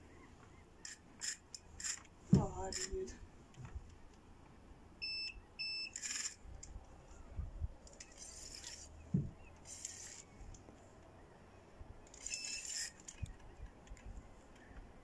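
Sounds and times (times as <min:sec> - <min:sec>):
fishing reel spinning rasp: 0:00.8 - 0:02.0
short electronic beeps: 0:05.0 - 0:06.3, 0:12.3 - 0:12.7.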